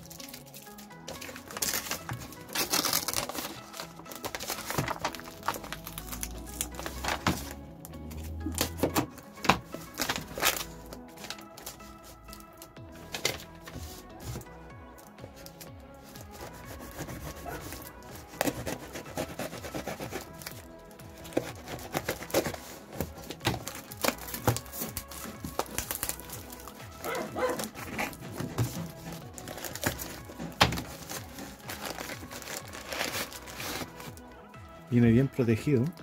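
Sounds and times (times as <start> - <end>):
plastic wrapping crinkling: 0.0 - 34.4
background music: 0.0 - 36.0
tape peeling: 0.1 - 34.2
knife cutting packing tape: 0.2 - 7.4, 8.1 - 11.8, 16.3 - 20.6, 21.2 - 34.1.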